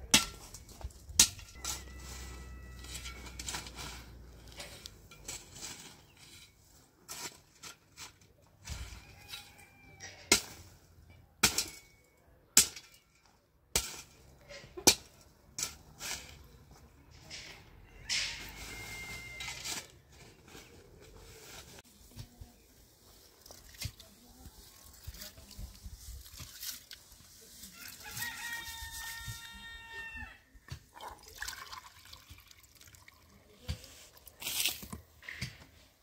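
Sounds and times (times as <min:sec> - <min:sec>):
shovel striking stony earth: 0:00.0 - 0:02.2, 0:13.7 - 0:16.5
shovel scraping earth: 0:00.1 - 0:10.8, 0:13.8 - 0:22.4, 0:33.6 - 0:36.0.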